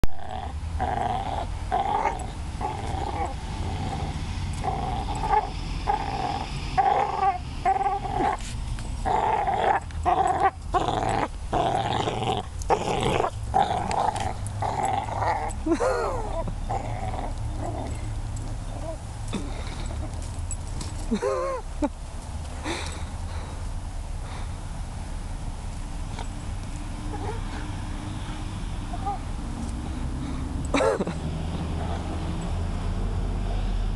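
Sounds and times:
dog growling: 0:00.1 - 0:20.3, 0:27.1 - 0:27.6.

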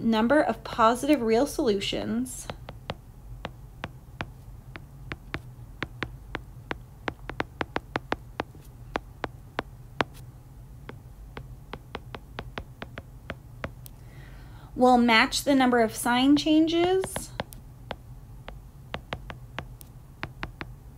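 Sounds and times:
low steady hum: 0:00.0 - 0:20.9
stylus tapping on glass screen: 0:02.5 - 0:10.2, 0:10.9 - 0:14.0, 0:17.1 - 0:20.8.

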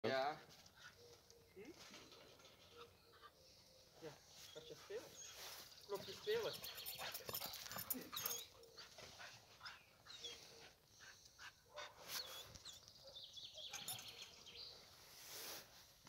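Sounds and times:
light rustling and scuffing: 0:04.3 - 0:07.9.

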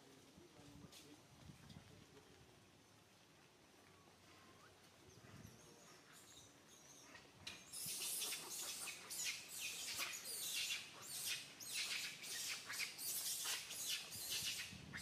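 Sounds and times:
birds chirping: 0:05.0 - 0:15.0.

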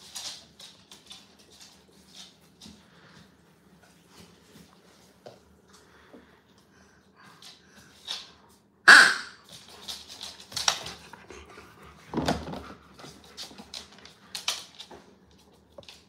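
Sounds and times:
dogs snuffling and scuffling: 0:00.0 - 0:08.7.

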